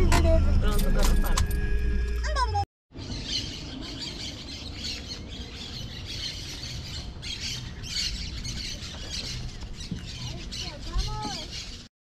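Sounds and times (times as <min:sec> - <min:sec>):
birds squawking and chattering: 0:02.9 - 0:11.9.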